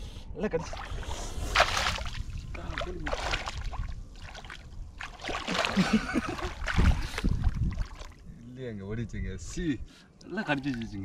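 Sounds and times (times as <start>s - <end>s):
water splashing around feet: 0.7s - 8.2s.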